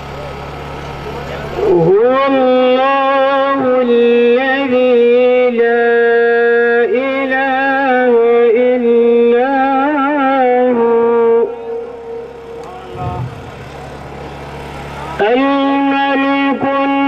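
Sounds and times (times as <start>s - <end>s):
man chanting: 1.6s - 14.0s, 15.1s - 17.0s.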